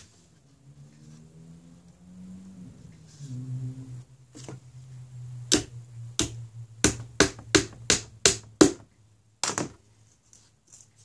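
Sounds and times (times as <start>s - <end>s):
hammer tapping on wood: 5.5s - 9.8s.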